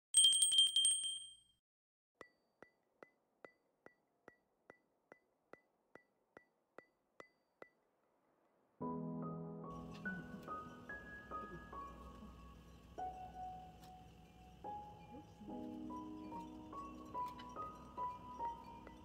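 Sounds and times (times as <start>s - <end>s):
high chiming ding: 0.2s - 1.4s.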